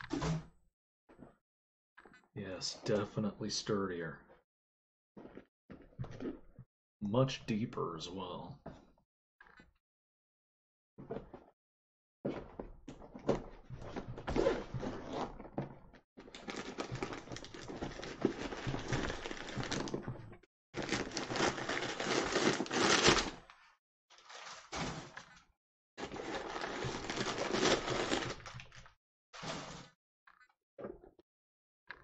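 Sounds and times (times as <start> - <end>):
packing paper crinkling: 16.4 - 20.0, 20.8 - 23.4, 26.0 - 28.8.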